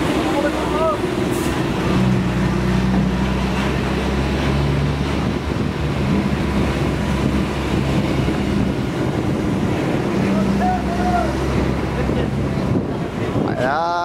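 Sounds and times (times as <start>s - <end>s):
diesel truck engine drone: 0.0s - 14.0s
tyre and road noise: 0.0s - 14.0s.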